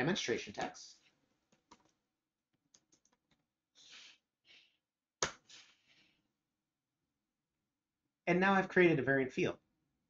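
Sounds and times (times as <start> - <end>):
keyboard typing: 2.6 - 3.4.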